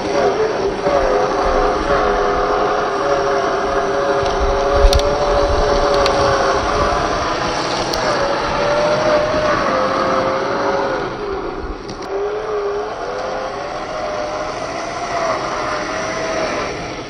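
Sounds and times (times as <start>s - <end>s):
toy car electric motor whining: 0.0s - 17.0s.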